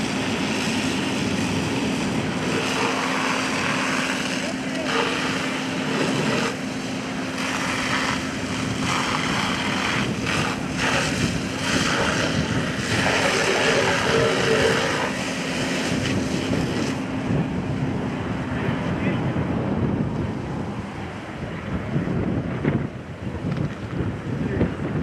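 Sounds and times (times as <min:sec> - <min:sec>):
fire hose spraying water: 0:00.0 - 0:17.9
engine droning: 0:00.0 - 0:25.0.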